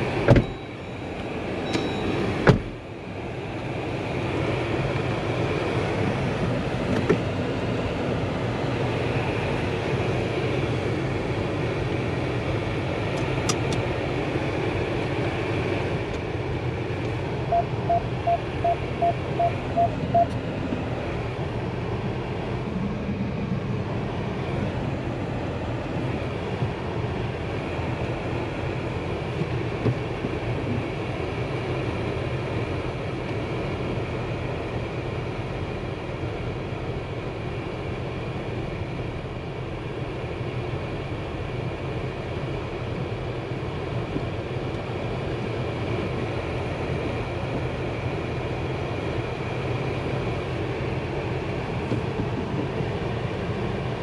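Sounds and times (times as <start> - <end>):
car engine running: 0.0 - 54.0
short beeps: 0.4 - 1.0, 1.6 - 2.2, 17.5 - 20.4.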